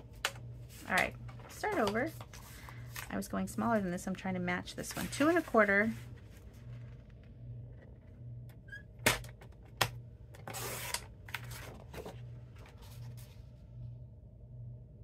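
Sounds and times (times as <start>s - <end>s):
paper rustling: 10.5s - 13.4s.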